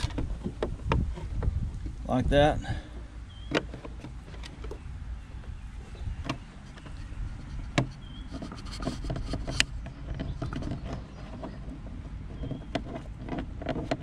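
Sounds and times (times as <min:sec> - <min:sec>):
low steady rumble: 0:00.0 - 0:14.0
hands rubbing plastic parts: 0:05.9 - 0:14.0.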